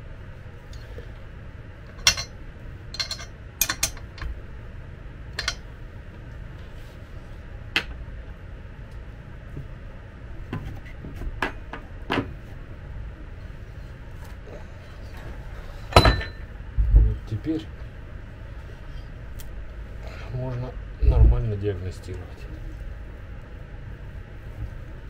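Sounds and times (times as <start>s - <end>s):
low steady hum: 0.0s - 25.0s
wrench clinking on metal: 2.0s - 2.3s, 3.0s - 4.2s.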